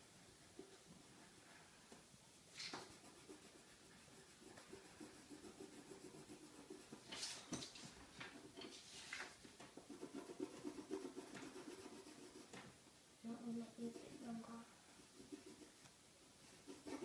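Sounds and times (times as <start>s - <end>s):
pencil scratching on paper: 2.6s - 12.6s, 13.7s - 15.8s, 16.4s - 17.0s.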